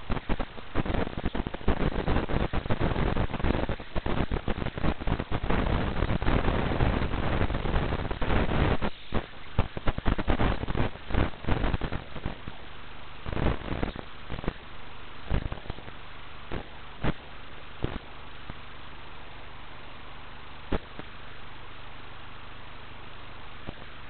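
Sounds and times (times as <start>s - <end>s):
crackling radio static: 0.0s - 24.0s.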